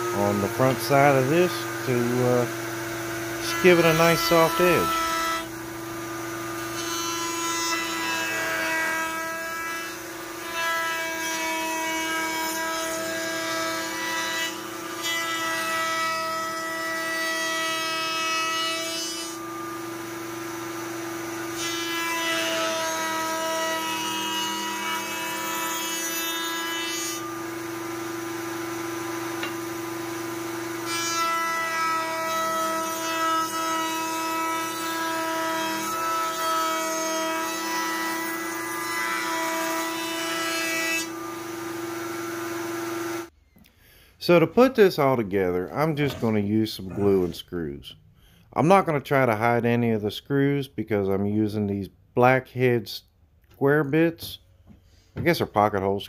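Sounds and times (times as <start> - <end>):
router motor high pitch: 0.0 - 5.6, 41.0 - 43.3
router bit cutting wood: 0.0 - 43.3.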